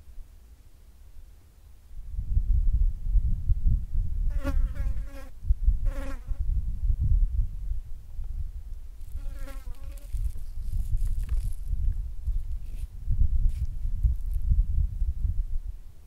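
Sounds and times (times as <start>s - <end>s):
insect buzzing: 9.0s - 11.6s.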